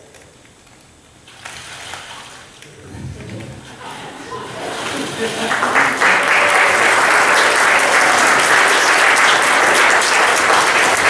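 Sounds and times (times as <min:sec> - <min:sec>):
congregation applauding: 0:02.8 - 0:11.0.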